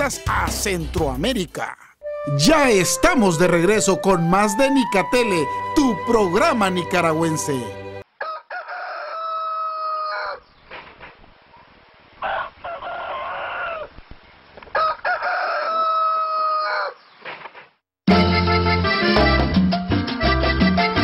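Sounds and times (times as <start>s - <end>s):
rooster crowing: 8.2s - 10.5s, 12.2s - 14.0s, 14.7s - 17.0s.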